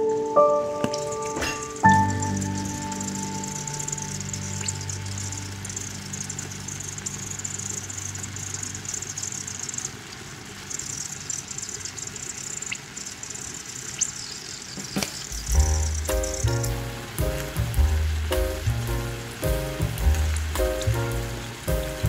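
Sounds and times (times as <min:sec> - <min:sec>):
sauce simmering in a pan: 0:01.2 - 0:14.7, 0:15.4 - 0:22.0
low hum: 0:01.9 - 0:10.7.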